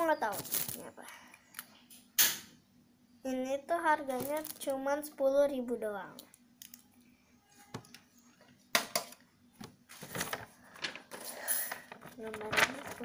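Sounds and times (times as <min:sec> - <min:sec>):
rustling: 0:09.9 - 0:13.0.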